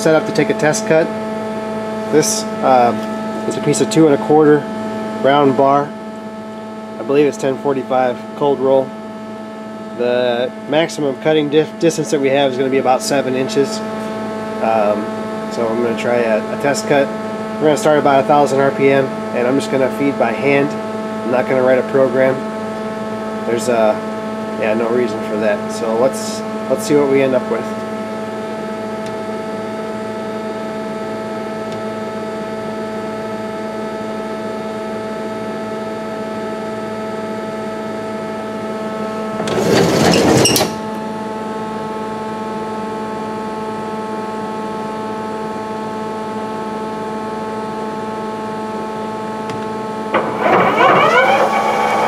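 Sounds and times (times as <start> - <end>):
lathe machine hum: 39.1 - 41.1, 49.6 - 52.0
sliding guard door scraping: 39.3 - 40.9, 50.2 - 52.0
spindle whining: 39.3 - 41.0, 50.0 - 52.0.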